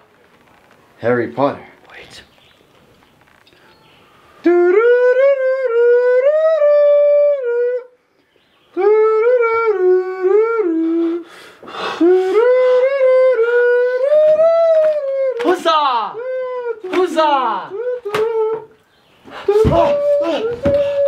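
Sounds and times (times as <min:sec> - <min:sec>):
person singing wordless tune: 0:04.4 - 0:08.0, 0:08.7 - 0:21.0.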